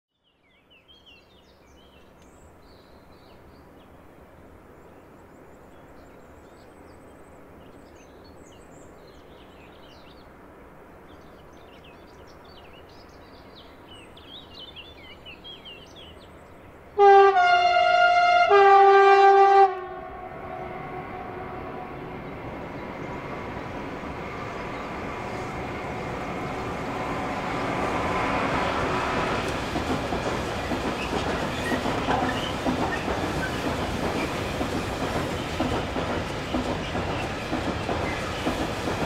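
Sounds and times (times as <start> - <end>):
faint background noise: 0.2 - 17.0
locomotive horn: 17.0 - 22.1
birds chirping: 21.5 - 39.0.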